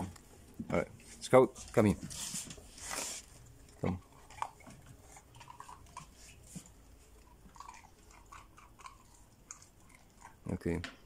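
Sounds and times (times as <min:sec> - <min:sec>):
dog chewing hard biscuit: 0:02.9 - 0:10.5.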